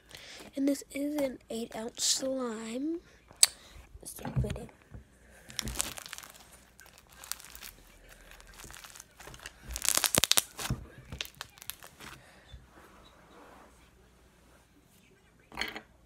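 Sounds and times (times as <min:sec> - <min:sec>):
crunchy slime crackling: 0:05.4 - 0:12.3.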